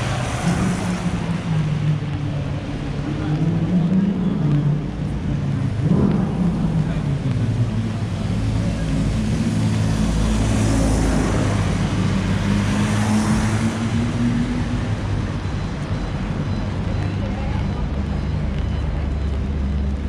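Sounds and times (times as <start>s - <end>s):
traffic hissing on wet road: 0.0s - 20.0s.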